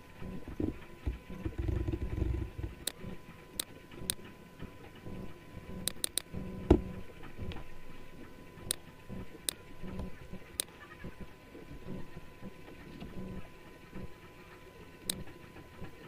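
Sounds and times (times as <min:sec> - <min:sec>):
faint steady hum: 0:00.0 - 0:16.0
computer mouse clicking: 0:05.8 - 0:06.9, 0:15.1 - 0:15.3.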